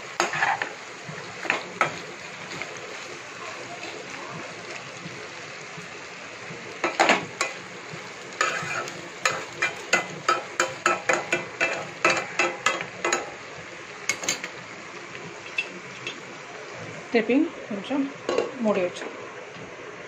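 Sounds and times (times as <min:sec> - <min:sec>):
food sizzling in oil: 0:00.0 - 0:19.4
steel spoon scraping a pan: 0:00.2 - 0:00.7, 0:08.4 - 0:13.4.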